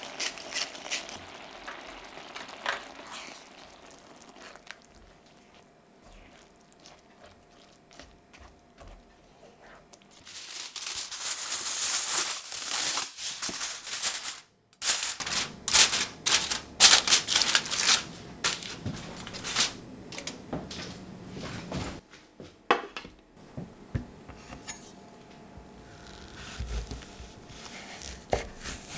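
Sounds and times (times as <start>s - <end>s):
stirring rice in skillet: 0.0s - 10.8s, 26.9s - 28.9s
aluminium foil crinkling: 0.0s - 20.4s.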